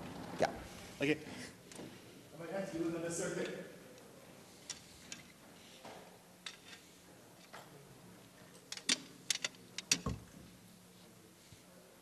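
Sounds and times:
equipment clicks and knocks: 0:08.7 - 0:10.5.

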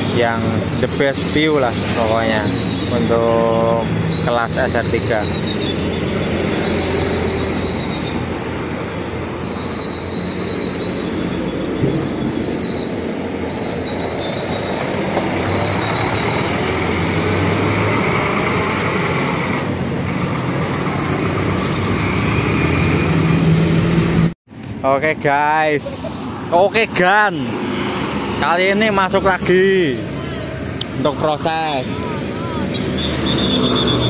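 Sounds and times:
diesel bus driving off: 0:00.0 - 0:24.4, 0:29.0 - 0:34.0
high shrill tone: 0:00.8 - 0:08.4, 0:09.4 - 0:17.4.

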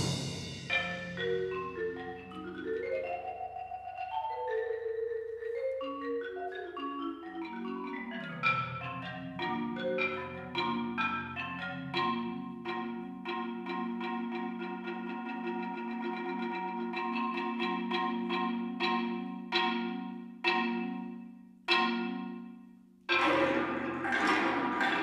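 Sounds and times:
marimba played with mallets: 0:00.0 - 0:25.0.

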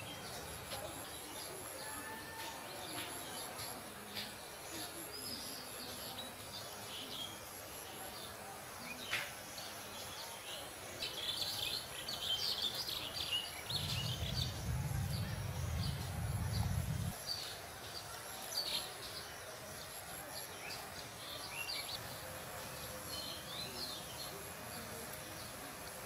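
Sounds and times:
small birds chirping: 0:00.0 - 0:26.0
low rumble: 0:13.7 - 0:17.2.

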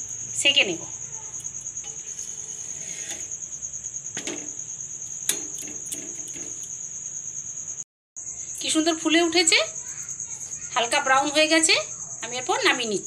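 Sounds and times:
spatula scraping iron griddle: 0:01.3 - 0:03.6, 0:04.2 - 0:06.8.

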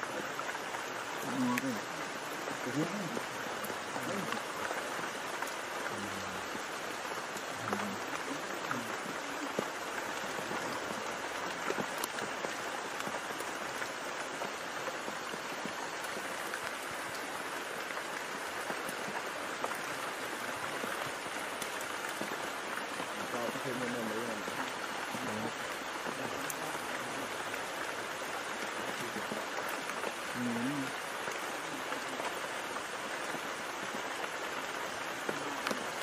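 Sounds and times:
rain falling on leaves: 0:00.0 - 0:36.0.

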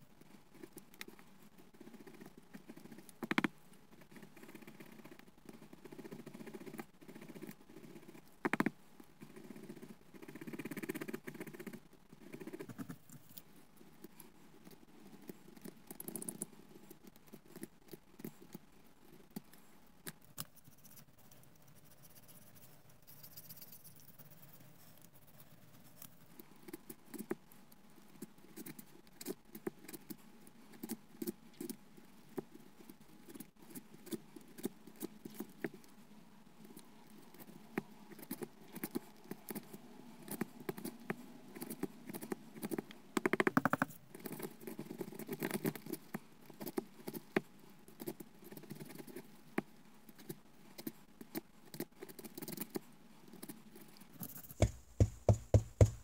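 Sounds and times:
faint scratches and clicks: 0:00.1 - 0:56.0.

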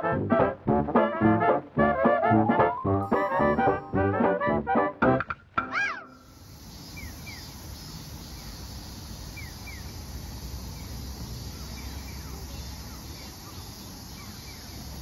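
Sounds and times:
bird chirps: 0:05.7 - 0:10.0, 0:10.7 - 0:15.0
high hiss: 0:06.0 - 0:15.0.

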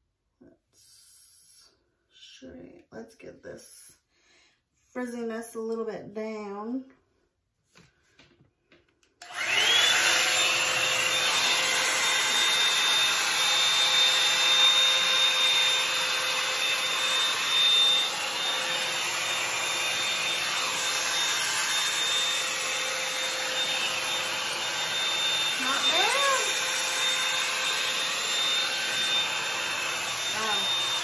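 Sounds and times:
hot-air brush motor whine: 0:09.2 - 0:31.0.

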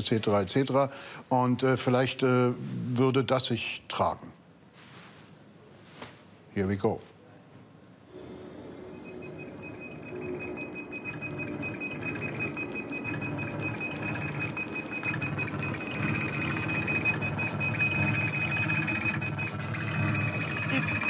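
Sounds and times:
steady high tone: 0:08.1 - 0:21.0
high chirping glides: 0:08.2 - 0:21.0.

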